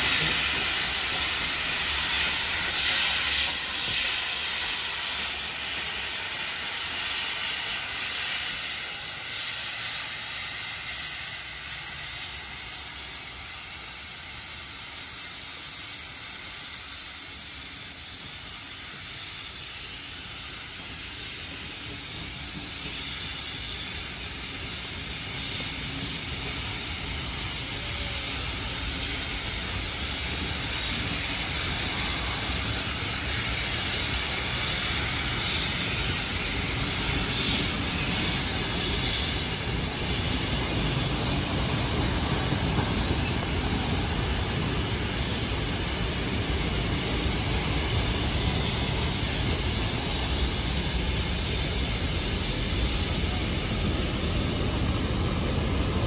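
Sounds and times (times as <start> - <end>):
steam locomotive hissing: 0.0 - 56.0
train carriages rumbling: 15.2 - 56.0.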